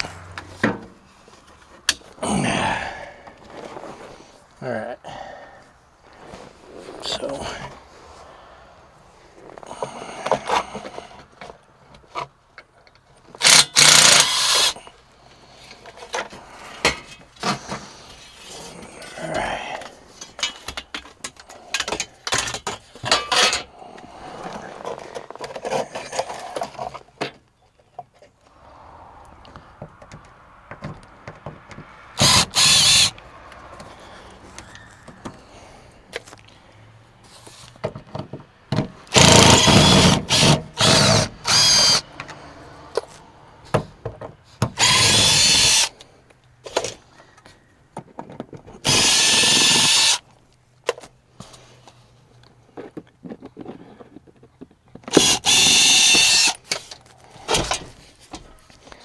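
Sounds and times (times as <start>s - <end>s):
cordless drill bursts: 13.4s - 14.8s, 32.2s - 33.1s, 39.1s - 42.0s, 44.8s - 45.9s, 48.8s - 50.2s, 55.1s - 56.6s.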